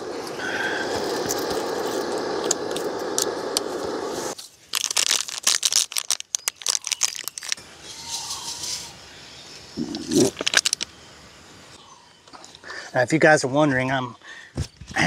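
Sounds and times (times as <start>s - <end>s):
gas stove burner hissing: 0.0s - 4.4s
plastic packaging crinkling: 4.4s - 7.6s, 10.0s - 10.8s.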